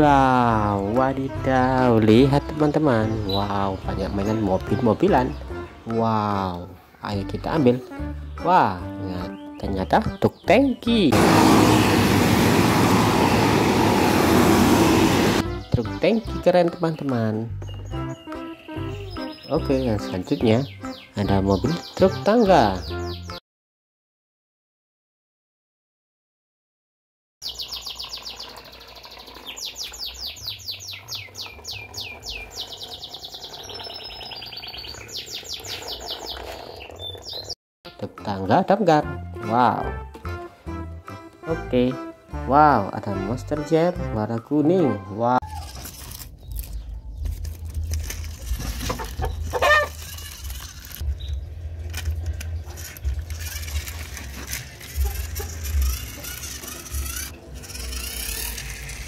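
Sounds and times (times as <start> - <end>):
songbird trilling: 27.4 - 37.6
toy truck scraping over rocks: 45.6 - 51.1, 51.8 - 59.0
chicken clucking: 48.8 - 50.0.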